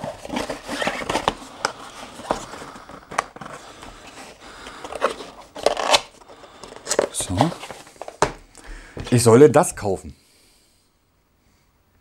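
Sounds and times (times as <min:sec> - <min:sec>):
cardboard packaging rustling: 0:00.0 - 0:08.4.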